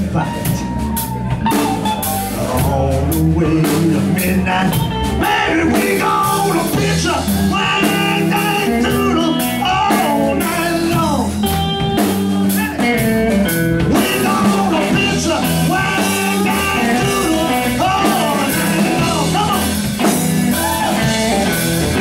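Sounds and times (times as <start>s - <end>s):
drum kit: 0.0s - 22.0s
electric guitars: 0.0s - 22.0s
man singing: 2.3s - 11.5s, 13.8s - 22.0s.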